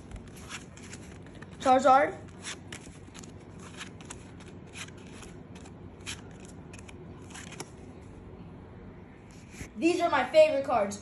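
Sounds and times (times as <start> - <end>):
trading cards handled: 0.0 - 8.0.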